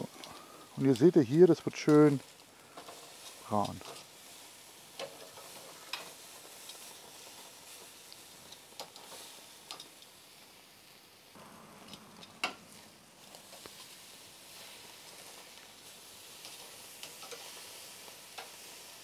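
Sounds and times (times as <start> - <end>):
steaks sizzling on grill: 0.0 - 19.0
tongs clicking on metal grate: 1.8 - 4.1, 4.9 - 6.8, 8.1 - 10.1, 16.4 - 18.6.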